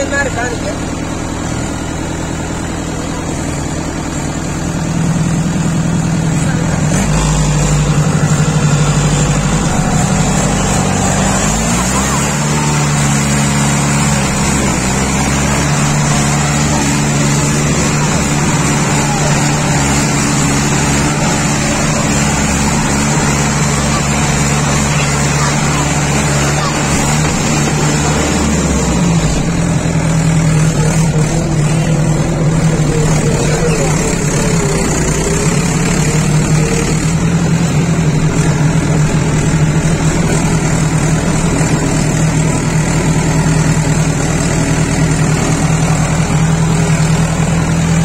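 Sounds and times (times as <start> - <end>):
tractor diesel engine running: 0.0 - 48.0.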